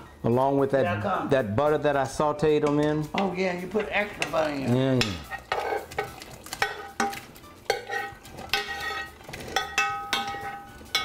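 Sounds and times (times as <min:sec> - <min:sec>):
spoon scraping and knocking skillet: 0:02.6 - 0:11.0.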